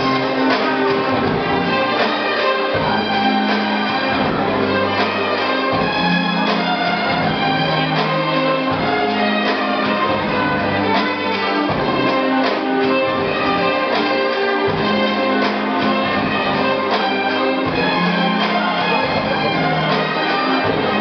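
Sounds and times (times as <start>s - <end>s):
orchestral music: 0.0s - 21.0s.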